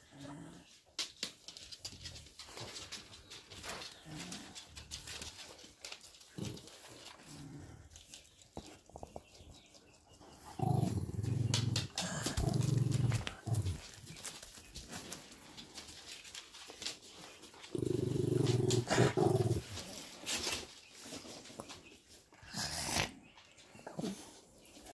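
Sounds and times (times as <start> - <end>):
dog growling low: 0.0 - 0.7, 10.4 - 14.0, 17.7 - 20.0.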